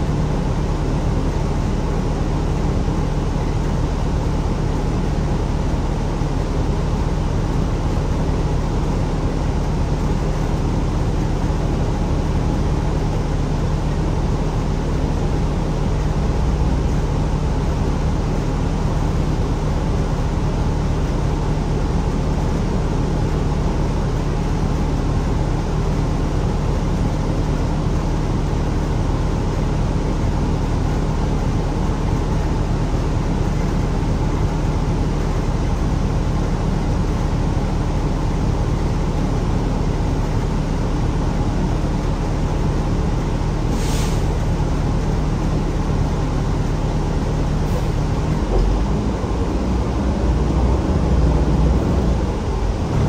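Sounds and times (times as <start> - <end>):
bus engine and road hum: 0.0 - 53.0
short sharp hiss: 43.7 - 44.4.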